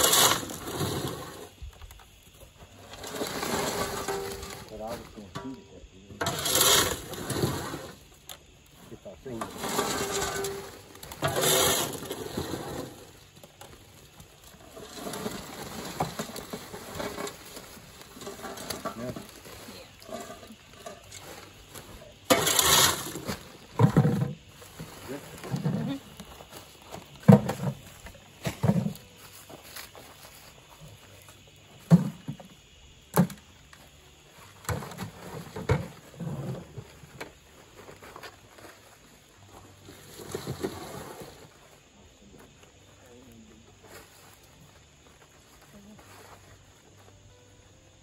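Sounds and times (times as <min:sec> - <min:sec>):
corn kernels rattling: 0:09.3 - 0:13.2.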